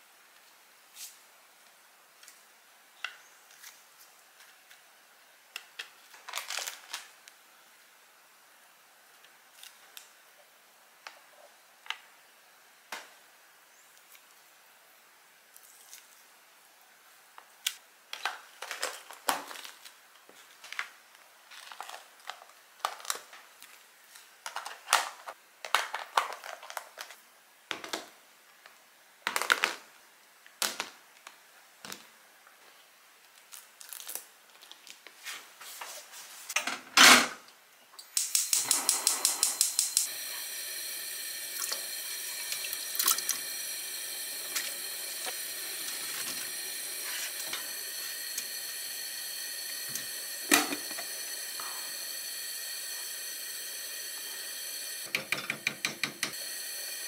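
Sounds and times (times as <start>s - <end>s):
gas stove igniter ticking: 38.1s - 40.1s
gas burner hissing: 38.1s - 57.0s.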